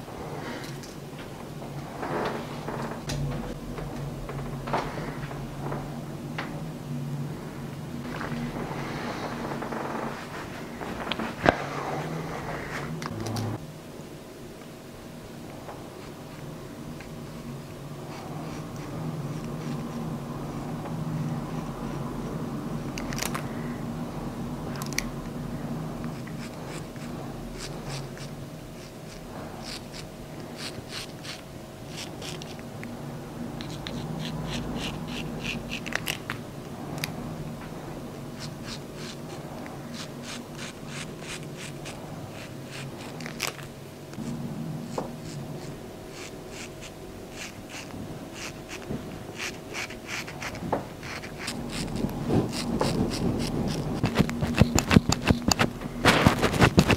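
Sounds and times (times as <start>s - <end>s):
steady low hum: 0.0s - 56.9s
razor scraping stubble: 26.0s - 32.7s, 33.6s - 36.3s, 38.3s - 56.9s.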